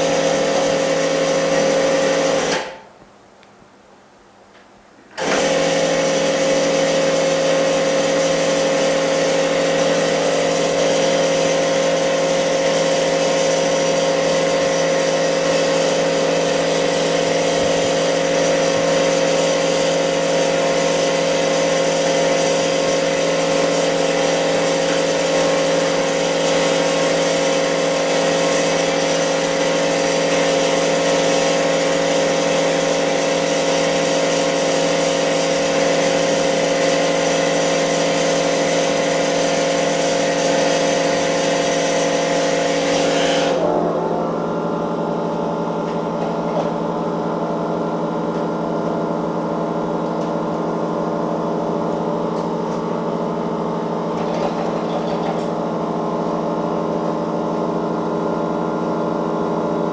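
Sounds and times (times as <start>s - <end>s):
machine mechanical hum: 43.3s - 59.9s.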